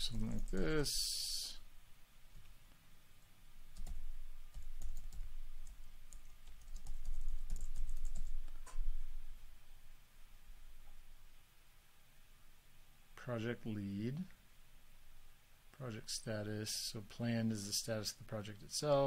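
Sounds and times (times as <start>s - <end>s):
typing on computer keyboard: 3.8s - 8.8s.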